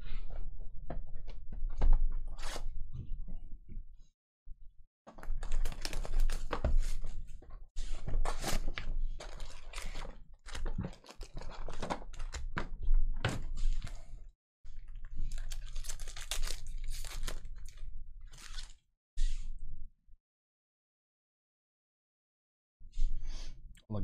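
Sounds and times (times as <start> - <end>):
foil crinkling: 5.2 - 7.0, 8.2 - 12.4, 14.9 - 18.7.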